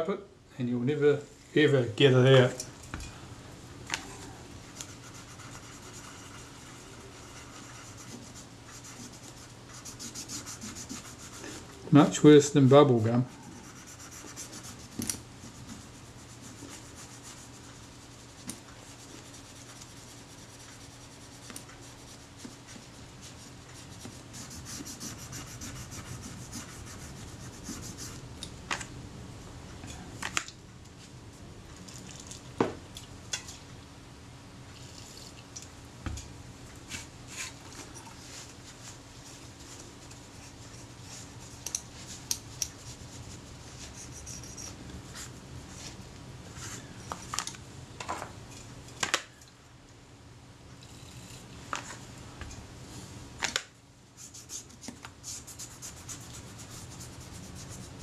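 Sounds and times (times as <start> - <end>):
steady low hum: 0.0 - 58.0
scratchy rubbing on metal: 4.7 - 11.6, 13.4 - 21.4, 23.8 - 28.2, 42.8 - 44.8.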